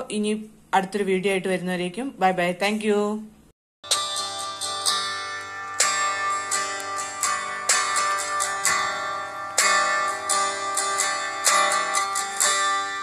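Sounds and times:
plucked string instrument music: 3.8s - 13.0s.

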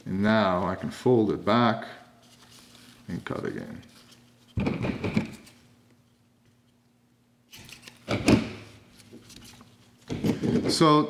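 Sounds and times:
foam tape rustling and rubbing: 2.2s - 4.6s, 8.8s - 10.2s.

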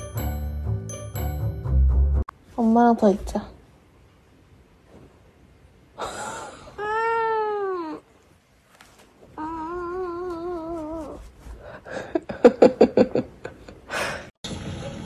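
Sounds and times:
cat meowing: 9.4s - 11.2s.

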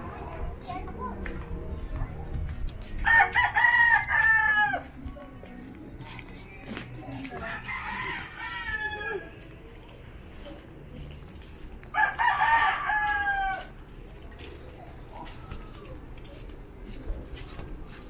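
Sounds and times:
rooster crowing: 3.1s - 4.8s, 7.6s - 9.4s, 12.0s - 13.7s.

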